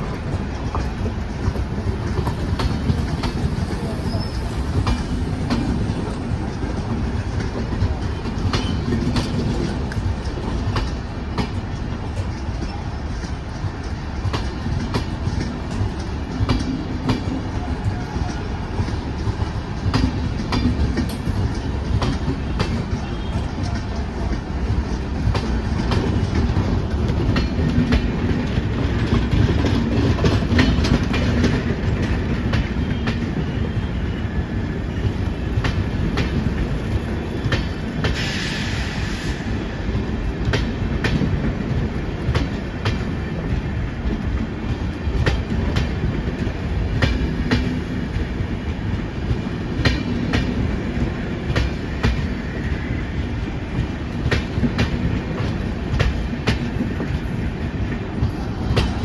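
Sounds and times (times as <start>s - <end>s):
train rumble: 0.0s - 59.0s
train wheels clacking: 0.0s - 59.0s.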